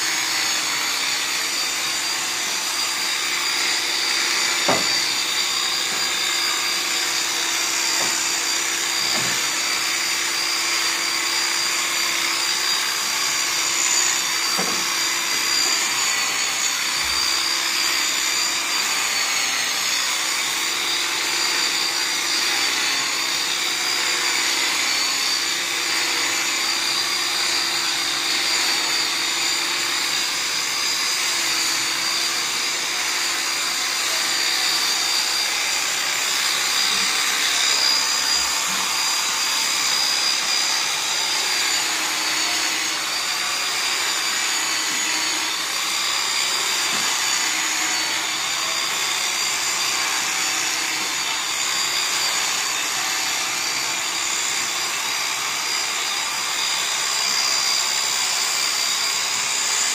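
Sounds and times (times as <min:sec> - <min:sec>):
electric clippers motor whine: 0:00.0 - 0:59.9.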